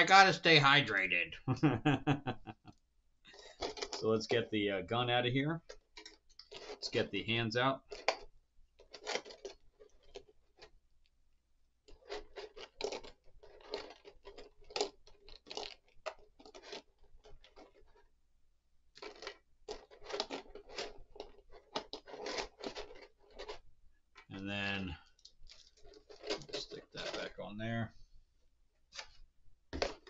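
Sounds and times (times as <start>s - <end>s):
plastic packaging crinkling: 25.2s - 27.4s.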